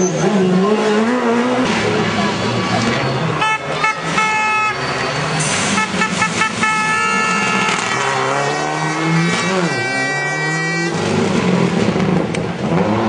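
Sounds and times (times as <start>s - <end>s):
rally car engine revving: 0.0s - 4.2s, 4.9s - 13.0s
air horn blasts: 3.4s - 4.8s, 5.6s - 8.0s.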